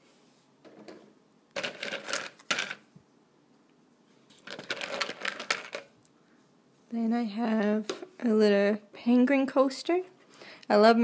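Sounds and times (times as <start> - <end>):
plastic beads clattering on wooden table: 0.7 - 2.9, 4.3 - 6.0.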